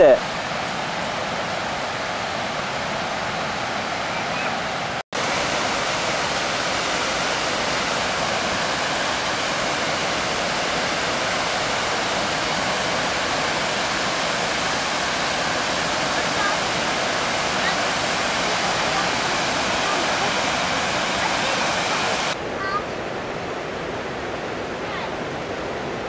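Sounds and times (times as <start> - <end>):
water rushing over rocks: 0.0 - 26.0.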